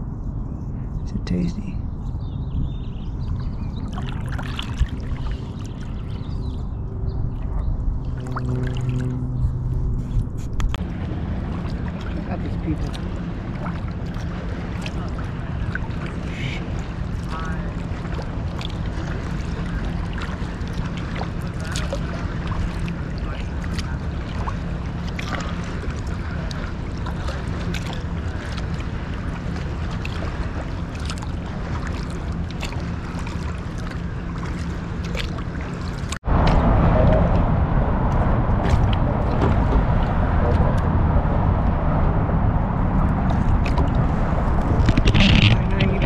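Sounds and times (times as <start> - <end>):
low steady hum: 0.0 - 46.0
water noise: 0.0 - 46.0
wind: 0.0 - 46.0
water ticks: 11.5 - 36.2.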